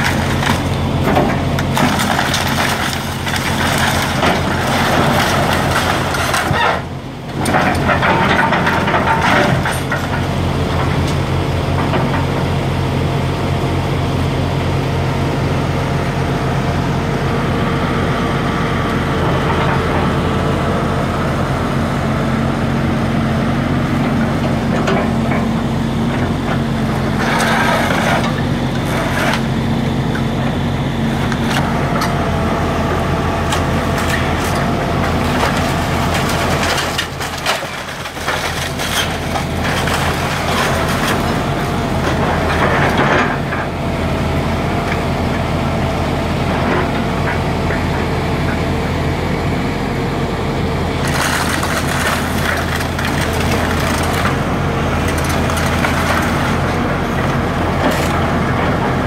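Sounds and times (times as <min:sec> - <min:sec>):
timber and metal debris crashing: 0:00.0 - 0:10.3, 0:33.5 - 0:43.5, 0:51.0 - 0:57.2
excavator diesel engine running: 0:00.0 - 0:59.0.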